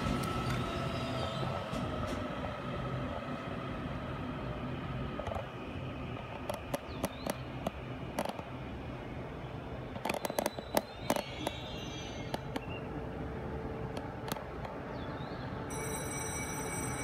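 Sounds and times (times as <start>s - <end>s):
train motor whine: 0.0s - 6.7s
train running gear rumble: 0.0s - 17.0s.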